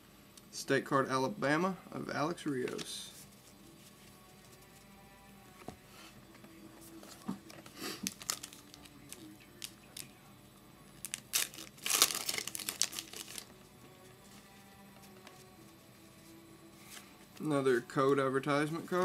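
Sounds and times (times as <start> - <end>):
wrapper crinkling and tearing: 8.0 - 10.1, 11.0 - 13.5.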